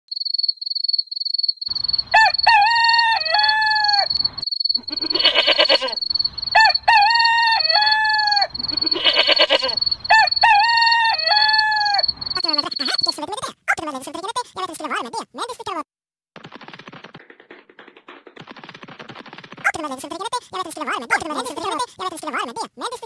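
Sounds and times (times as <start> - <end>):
high pulsing chirping: 1.7 - 13.3
rooster crowing: 1.8 - 12.1.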